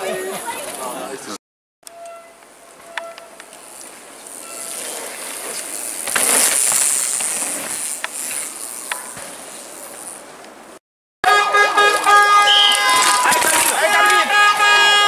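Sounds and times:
bike tyres rushing over dirt: 2.7 - 10.8, 11.6 - 15.0.

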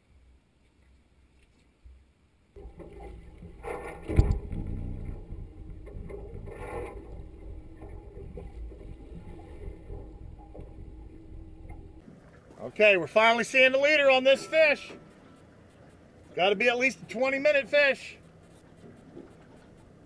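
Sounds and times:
boat motor running: 2.6 - 12.0
wind on microphone: 3.1 - 12.0.

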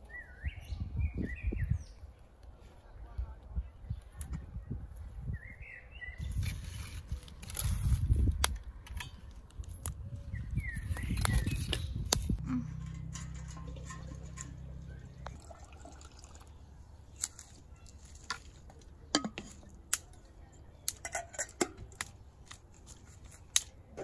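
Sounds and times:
low steady hum: 12.1 - 17.1
pots and boards clattering: 12.4 - 15.5, 19.1 - 19.7.

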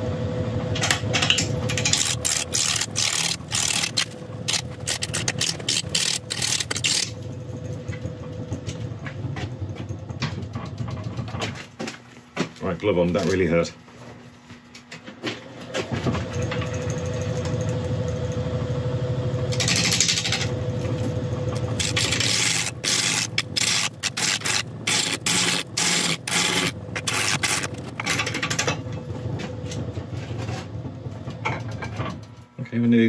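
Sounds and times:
wood lathe motor running: 1.7 - 7.3, 19.4 - 28.5
gouge hitting and scraping wood: 1.8 - 7.1, 21.6 - 28.4.

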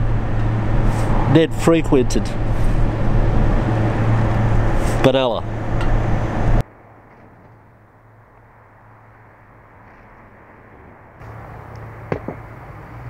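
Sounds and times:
traffic noise with low hum: 0.0 - 13.0.

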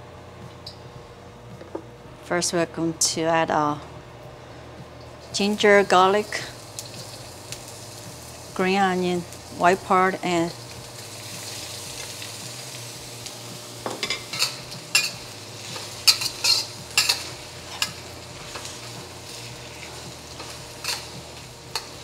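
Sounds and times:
vegetables sizzling in hot oil: 5.2 - 22.0
spatula scraping and knocking wok: 13.8 - 22.0.

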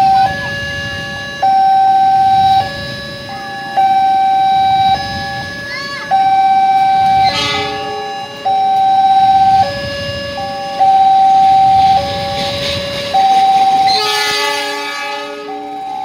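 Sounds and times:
level crossing alarm: 0.0 - 16.0
road traffic noise: 0.0 - 16.0
train horn: 7.1 - 8.4, 11.4 - 16.0.

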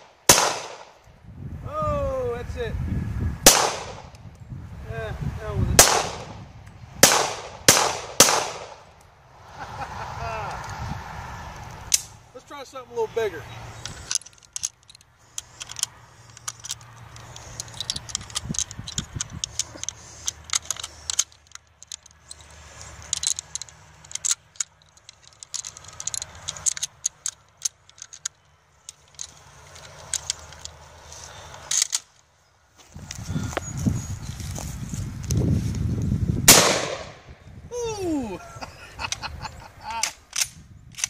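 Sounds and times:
rifle cartridges clicking and clinking: 13.8 - 32.2.

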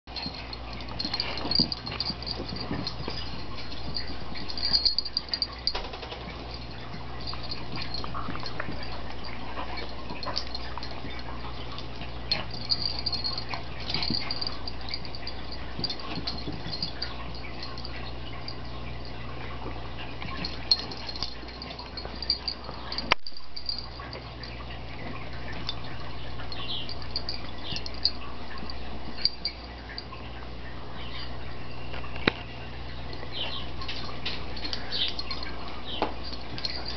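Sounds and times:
steady low hum: 0.1 - 36.9
animals scuffling on carpet: 0.2 - 23.1.

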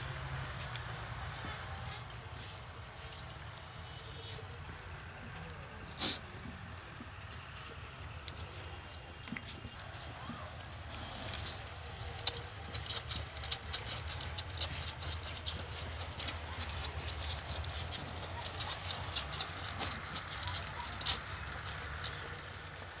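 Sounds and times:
lamb sucking from a bottle: 10.6 - 23.0.

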